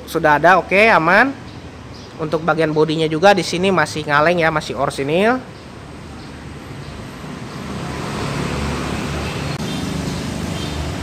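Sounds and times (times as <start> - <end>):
road noise: 0.0 - 11.0
vehicle engine hum: 5.5 - 11.0.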